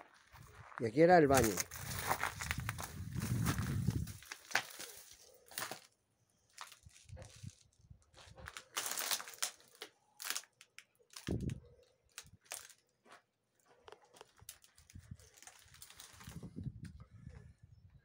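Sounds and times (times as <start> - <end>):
footsteps crunching on rubble: 0.0 - 5.9, 6.5 - 10.5, 12.2 - 16.4.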